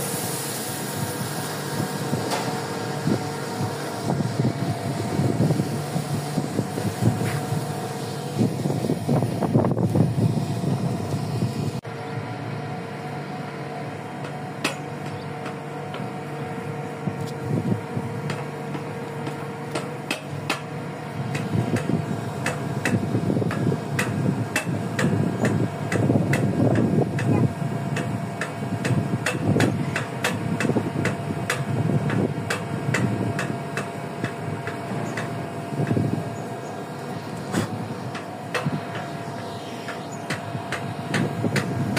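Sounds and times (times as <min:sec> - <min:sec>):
steady machine hum: 0:00.0 - 0:41.9.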